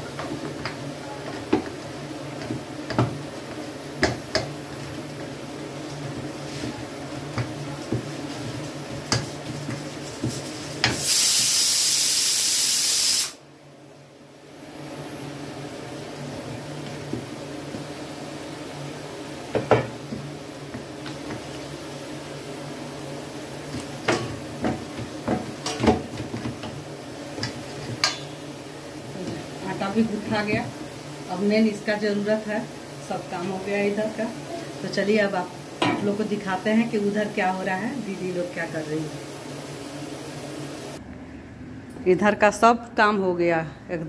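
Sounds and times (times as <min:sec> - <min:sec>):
dough kneaded in steel bowl: 0:00.0 - 0:11.1
pressure cooker whistle hissing: 0:11.0 - 0:13.4.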